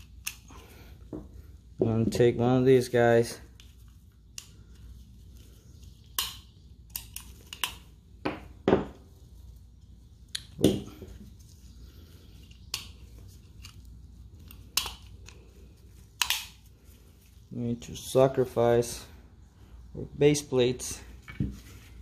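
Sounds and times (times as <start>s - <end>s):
magazine clicks and knocks: 16.2s - 16.6s.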